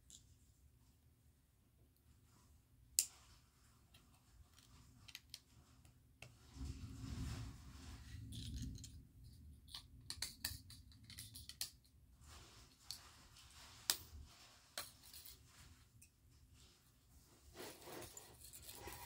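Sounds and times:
rustle of handling: 0:12.2 - 0:19.0.

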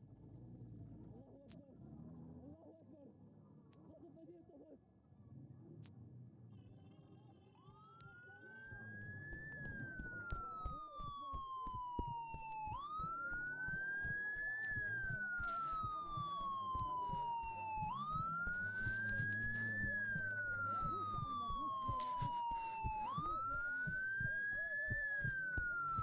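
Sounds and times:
high-pitched ringing tone: 0:00.0 - 0:26.0
siren wailing: 0:00.0 - 0:26.0.

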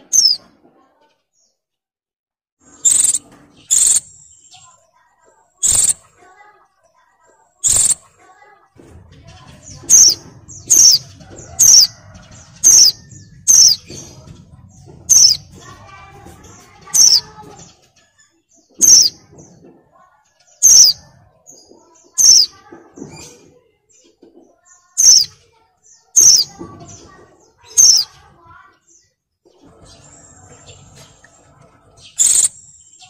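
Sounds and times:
bird giving sharp high calls: 0:02.8 - 0:04.2, 0:05.6 - 0:06.0, 0:07.6 - 0:08.0.

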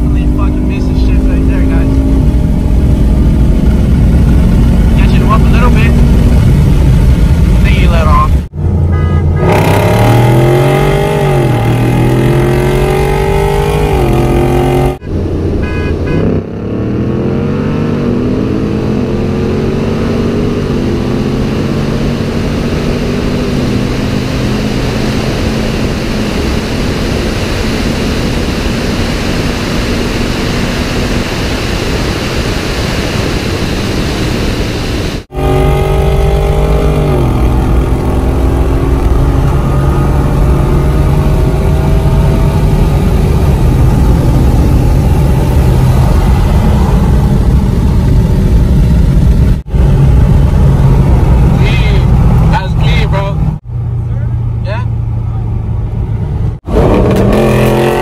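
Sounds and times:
car engine at full throttle: 0:00.0 - 0:58.0
wind on microphone: 0:18.0 - 0:52.5.

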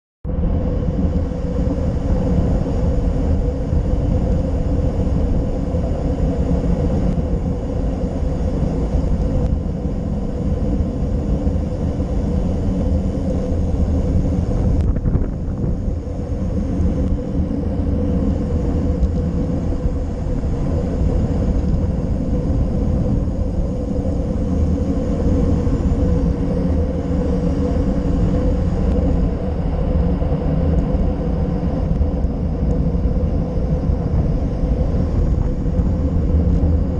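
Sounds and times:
wind rushing over microphone: 0:00.2 - 0:36.9.

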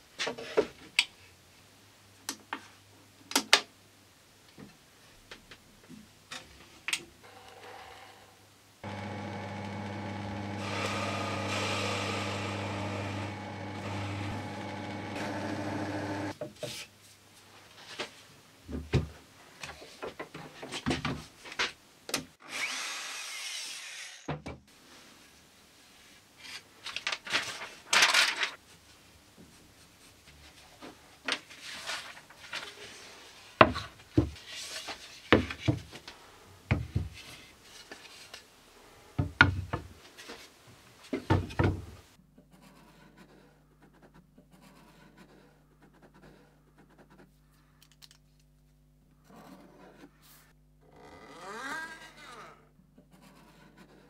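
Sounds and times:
handheld router running: 0:08.8 - 0:16.3.

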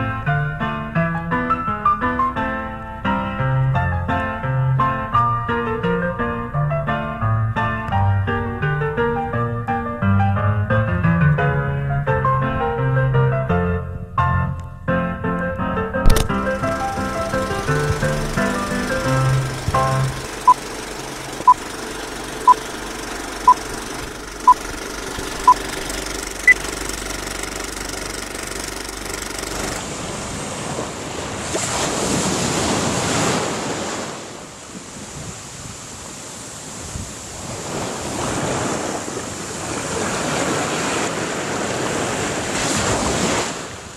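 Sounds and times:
countdown beeps: 0:22.4 - 0:22.6, 0:24.4 - 0:24.6
waves on a pebble beach: 0:29.8 - 0:43.9.

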